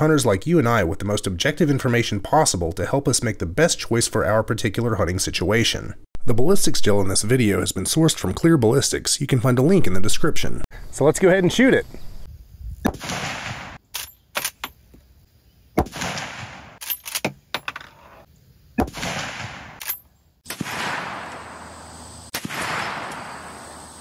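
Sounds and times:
rifle shots echoing: 12.9s - 13.8s, 15.8s - 16.8s, 18.8s - 23.9s.

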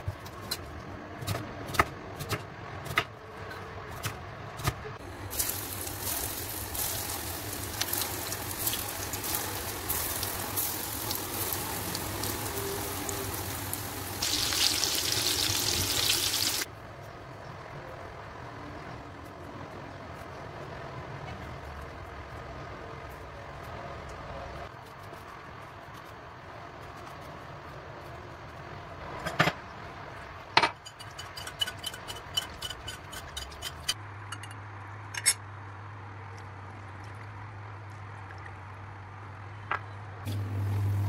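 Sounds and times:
meatballs sizzling in hot oil: 5.3s - 16.7s, 40.3s - 41.0s
steady hum: 40.3s - 41.0s.

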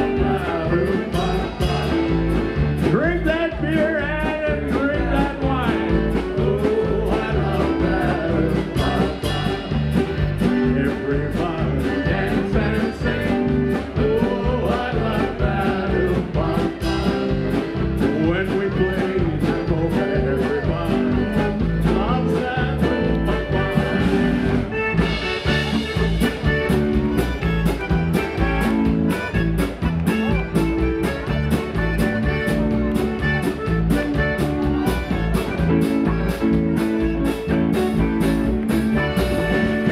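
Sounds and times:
man singing into a microphone: 0.0s - 2.1s, 2.8s - 9.8s, 10.5s - 23.9s
polka accordion music: 0.0s - 39.9s.

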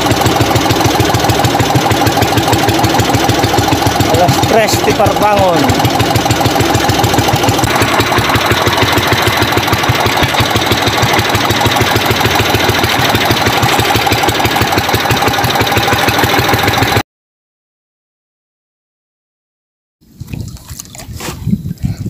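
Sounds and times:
boat engine throbbing: 0.0s - 17.0s
steady engine whine: 0.0s - 17.0s.

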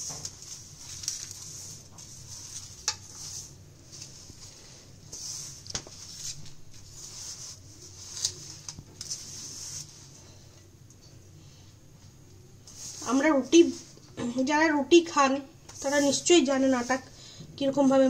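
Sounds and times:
hands kneading dough: 0.0s - 10.6s.

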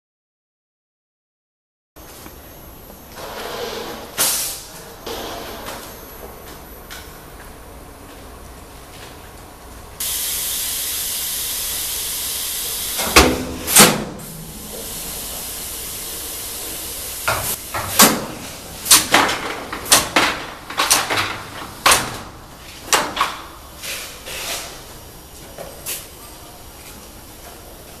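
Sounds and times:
machinery hissing: 3.2s - 5.9s, 10.0s - 19.1s.

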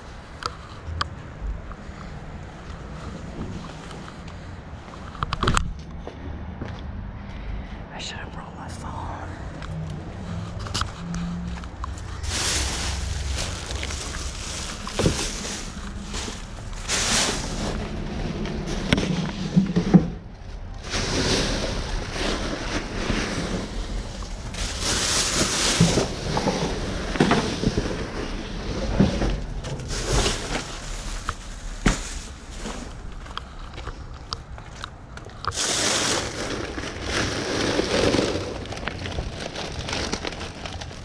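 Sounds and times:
plastic bags rustling and crinkling: 10.2s - 19.8s, 20.7s - 33.9s, 35.4s - 41.0s.

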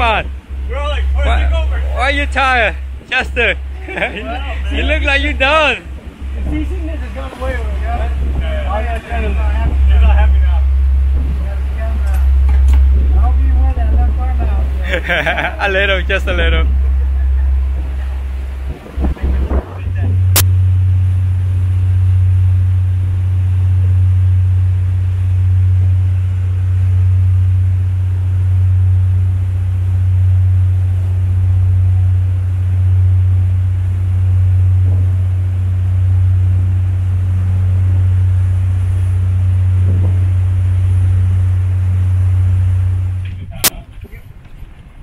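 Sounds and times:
boat engine droning: 0.0s - 45.0s.

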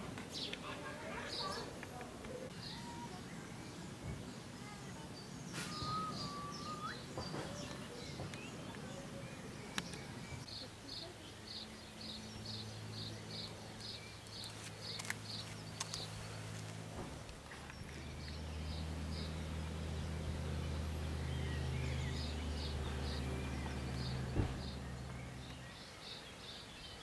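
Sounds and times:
birds singing: 0.0s - 27.0s.

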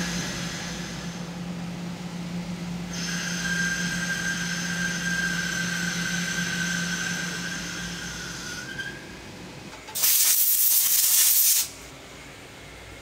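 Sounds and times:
lathe boring high whine: 2.8s - 9.1s
compressed air blow gun hiss: 10.0s - 11.7s.

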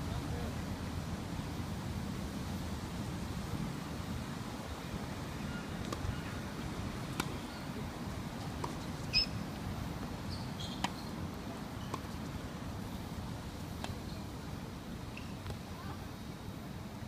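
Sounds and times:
tennis ball struck by rackets: 8.6s - 8.8s.

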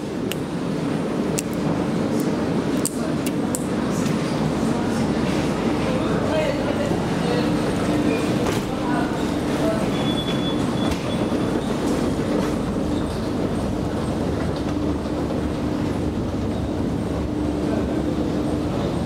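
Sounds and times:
escalator rumbling: 0.0s - 19.0s.

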